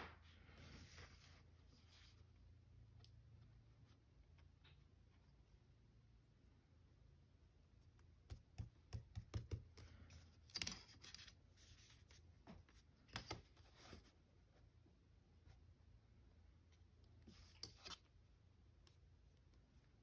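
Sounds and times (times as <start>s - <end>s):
paper rustling: 10.0s - 14.1s, 17.3s - 18.1s.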